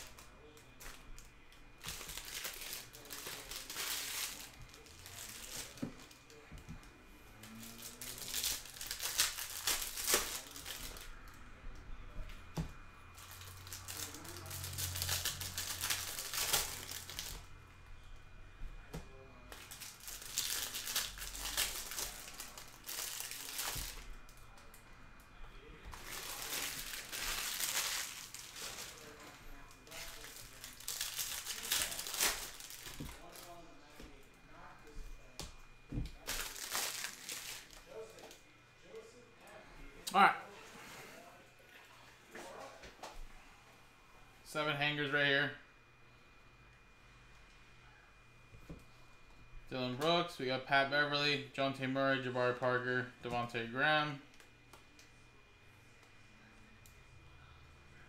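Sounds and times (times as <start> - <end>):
plastic wrapping crinkling: 0.0 - 6.5, 7.4 - 11.4, 13.2 - 17.5, 19.5 - 24.6, 25.9 - 33.6, 36.0 - 38.4.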